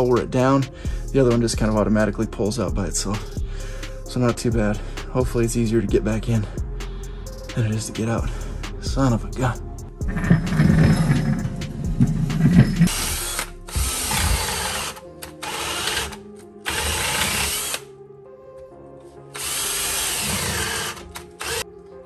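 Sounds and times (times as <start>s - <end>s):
cordless drill running: 12.5s - 17.9s, 19.3s - 21.6s.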